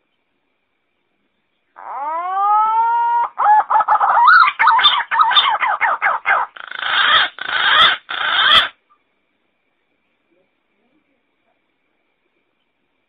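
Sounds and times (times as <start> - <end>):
pigeon calling: 1.8 - 8.8.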